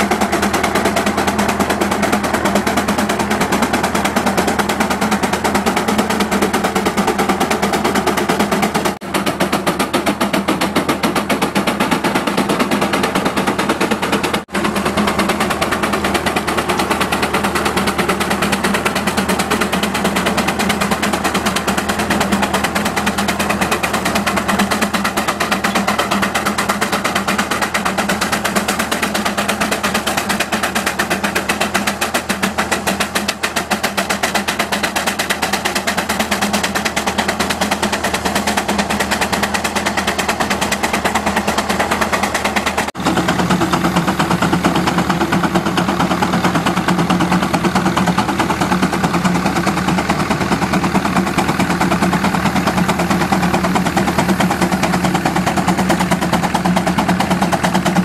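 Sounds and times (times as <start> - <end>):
steam engine exhaust beating: 0.0 - 58.0.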